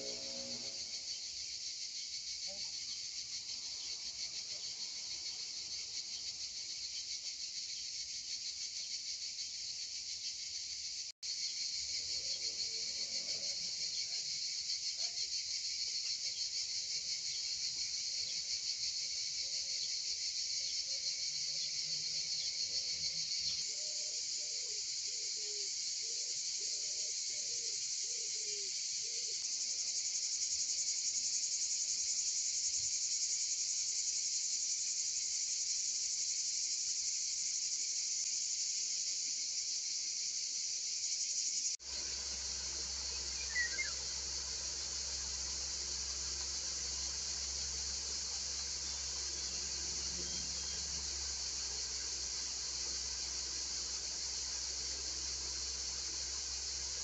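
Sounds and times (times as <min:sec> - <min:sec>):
crickets trilling: 0:00.0 - 0:57.0.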